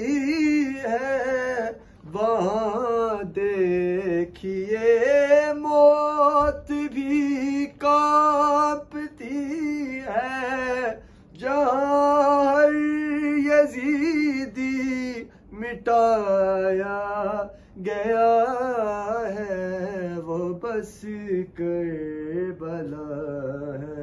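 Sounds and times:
man chanting: 0.0 - 24.0.

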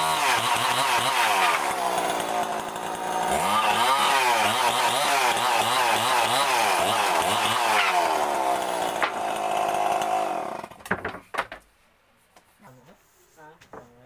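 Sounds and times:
chainsaw cutting wood: 0.0 - 11.2
sharp knocks: 10.8 - 11.7.

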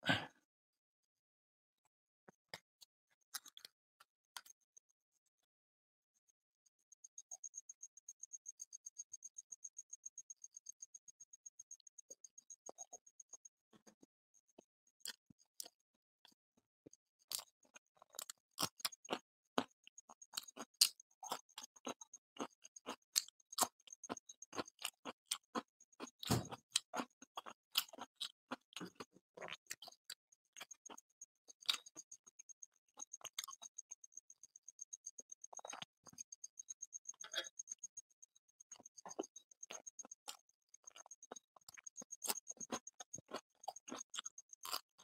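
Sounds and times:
chewing and smacking: 3.3 - 3.8, 4.4 - 4.6, 15.0 - 37.8, 38.6 - 45.0.

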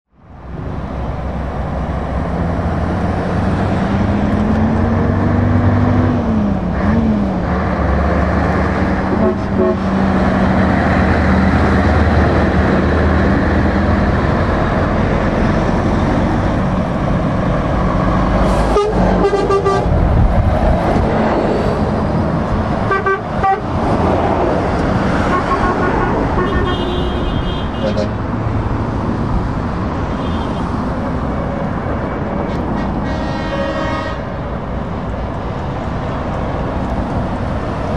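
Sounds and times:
heavy trucks driving past: 0.2 - 37.9
truck horn toots: 9.1 - 10.0, 18.6 - 20.0, 22.8 - 23.7, 25.2 - 28.2, 32.7 - 34.4.

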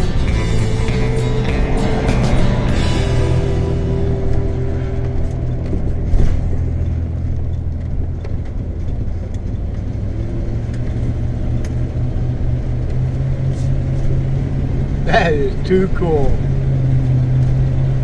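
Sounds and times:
engine and road noise drone: 0.0 - 18.0.

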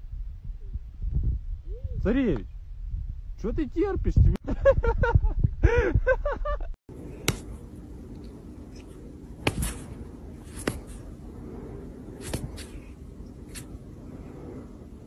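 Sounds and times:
indoor room hum: 4.5 - 15.0.

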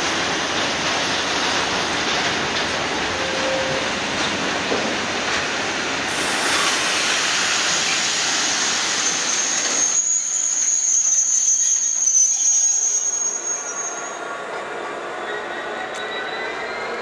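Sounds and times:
train wheels rolling on rails: 0.0 - 17.0
high metallic wheel squeal: 9.2 - 14.4, 15.0 - 17.0.

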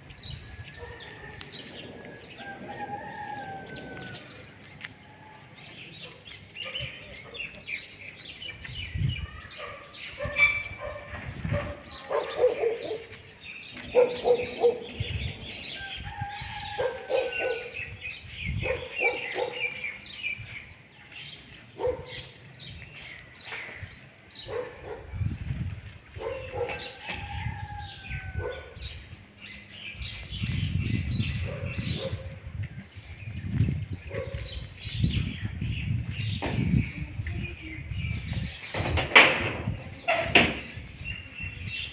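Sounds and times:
birds chirping: 0.0 - 41.9
dog barking: 9.6 - 13.2, 13.8 - 15.0, 16.8 - 17.8, 18.6 - 19.8, 21.8 - 22.3, 24.4 - 25.1, 26.2 - 27.0, 28.4 - 28.8, 31.4 - 32.4, 34.1 - 34.7.

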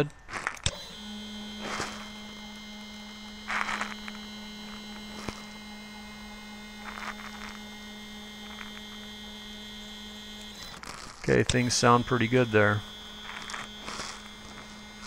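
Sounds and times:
stepper motor humming: 0.0 - 15.0
short scratchy noises: 10.5 - 15.0.

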